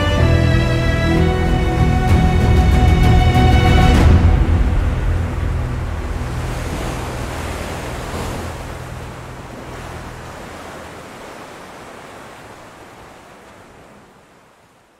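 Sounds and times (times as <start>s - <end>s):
low steady drone: 0.0s - 11.0s
sea water rushing: 0.0s - 14.9s.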